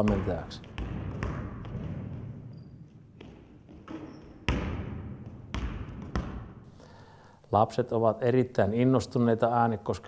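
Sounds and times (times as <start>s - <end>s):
basketball bouncing in echoing hall: 0.0s - 6.8s.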